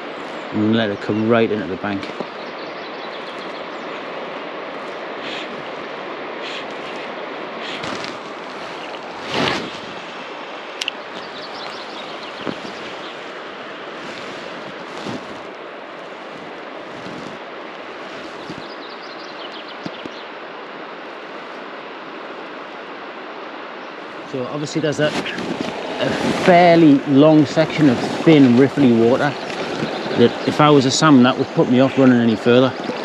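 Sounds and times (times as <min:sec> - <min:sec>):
river water rushing over riffles: 0:00.0 - 0:33.0
rustle: 0:00.0 - 0:33.0
faint clicks: 0:10.8 - 0:11.8.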